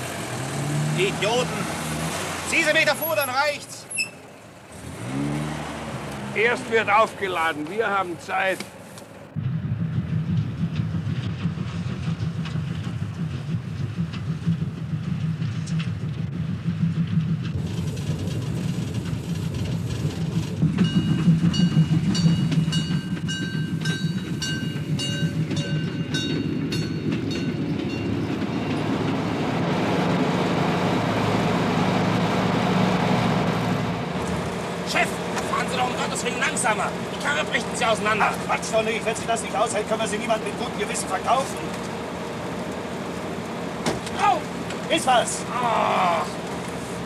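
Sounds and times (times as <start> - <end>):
train wagons rumbling: 0.0 - 47.0
high metallic squeal: 3.9 - 4.3
rail clatter: 5.9 - 45.4.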